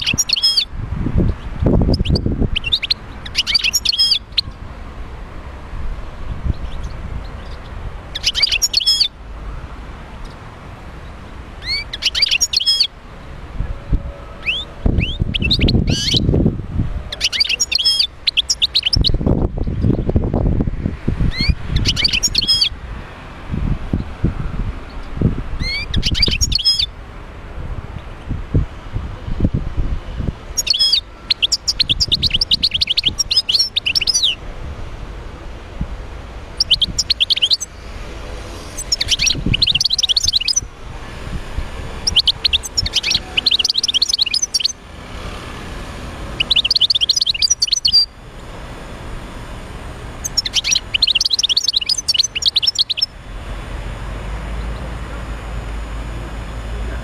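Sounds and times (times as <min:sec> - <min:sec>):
goldfinch twittering song: 0:00.0 - 0:00.7, 0:01.3 - 0:04.6, 0:06.5 - 0:09.2, 0:11.6 - 0:12.9, 0:14.4 - 0:16.3, 0:17.1 - 0:20.1, 0:21.3 - 0:22.7, 0:24.9 - 0:27.0, 0:30.6 - 0:34.4, 0:36.5 - 0:38.0, 0:38.6 - 0:40.7, 0:42.0 - 0:44.8, 0:46.3 - 0:48.2, 0:50.2 - 0:53.1.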